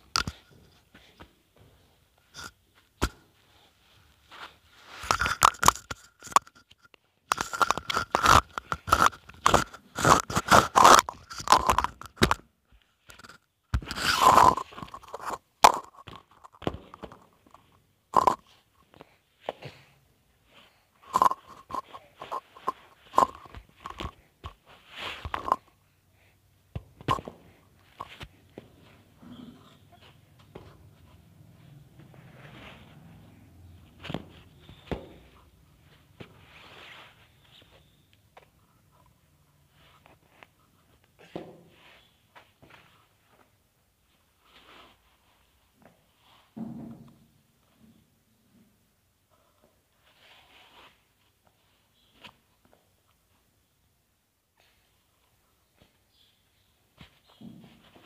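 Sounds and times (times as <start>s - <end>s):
plastic cone crackling: 5.0s - 12.4s, 13.1s - 17.6s, 18.2s - 18.5s, 21.0s - 25.7s.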